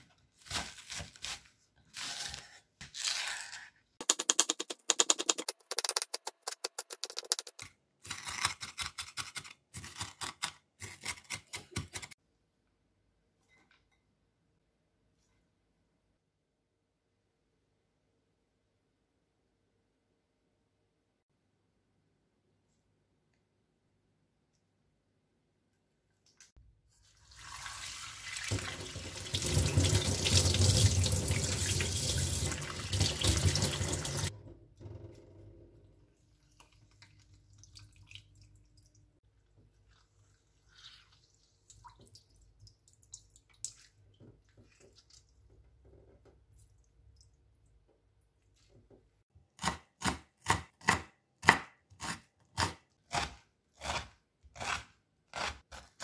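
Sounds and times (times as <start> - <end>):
tap water running into metal sink: 27.3 - 34.3
knife chopping vegetables on board: 49.6 - 56.0.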